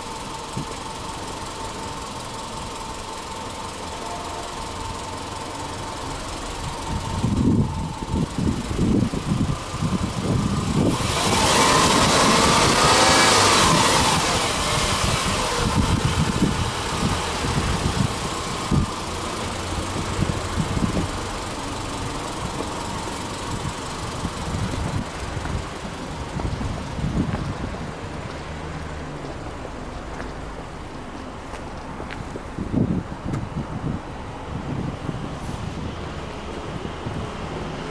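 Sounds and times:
car engine idling: 0.0 - 37.9
wind buffeting microphone: 5.9 - 28.4, 32.0 - 37.8.

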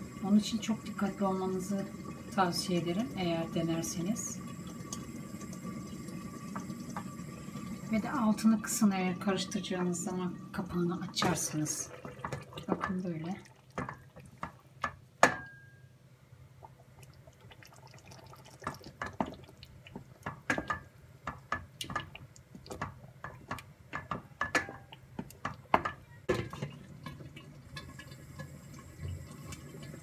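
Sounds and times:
sauce simmering and spattering: 16.6 - 30.0
wooden spoon stirring: 18.6 - 28.5.

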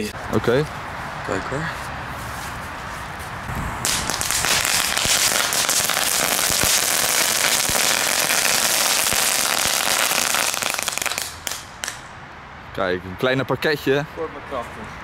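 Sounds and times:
firework pops: 3.5 - 12.0
firework crackling: 3.5 - 12.1.

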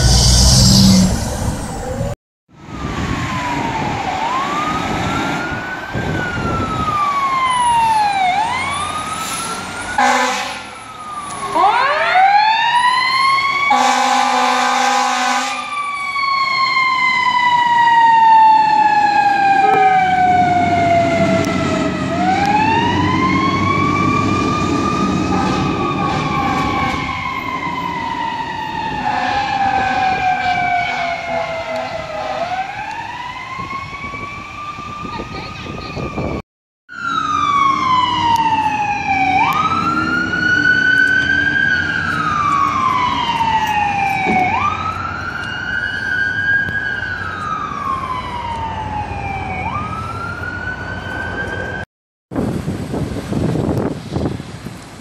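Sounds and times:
truck engine: 0.0 - 2.2
fire truck sirens wailing: 0.0 - 51.8
horn blasts: 10.0 - 10.8, 13.7 - 15.7, 19.6 - 20.2, 29.0 - 32.6.

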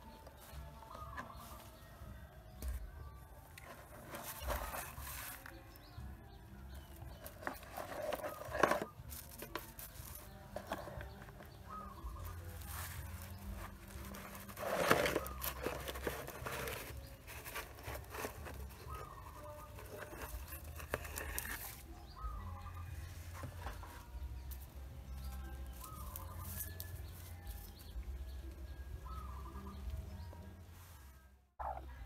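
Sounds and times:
dry straw rustling and crackling: 3.5 - 5.9, 7.1 - 28.6.

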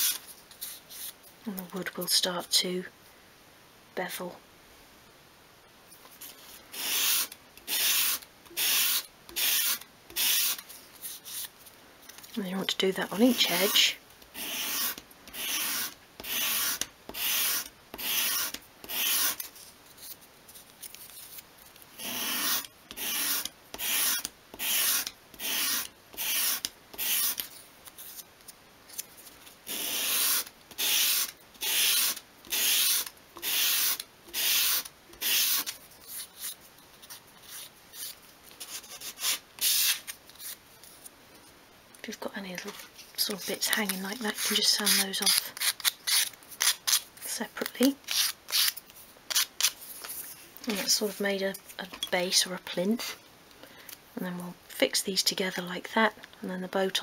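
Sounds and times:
wood rasping on sandpaper: 13.3 - 19.4, 22.0 - 27.4.

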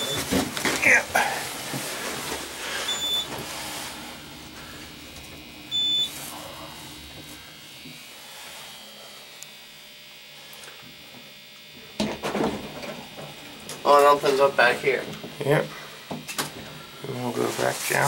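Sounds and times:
elevator electronic beeps: 0.0 - 0.3, 2.8 - 3.3, 5.7 - 6.1.

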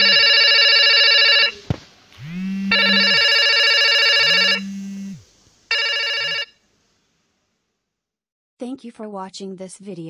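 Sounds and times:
electronic ringing tone: 0.0 - 1.6, 2.3 - 6.6
low hum: 4.2 - 5.3.

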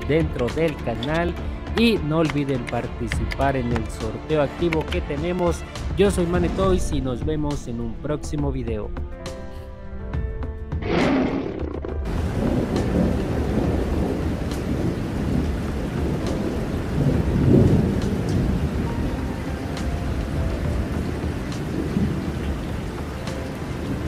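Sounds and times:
thunder crack: 10.8 - 19.2
deep rolling thunder: 10.8 - 24.0
steady rain: 12.1 - 24.0.

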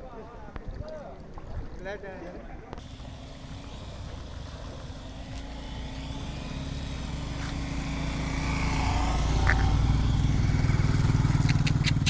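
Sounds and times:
motorcycle engines running: 2.8 - 12.0.

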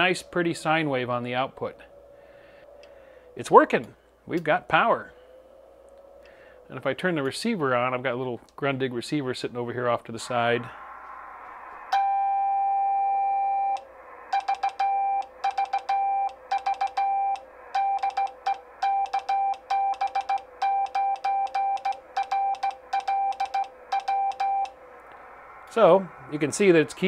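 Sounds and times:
morse code tone: 11.9 - 24.8.

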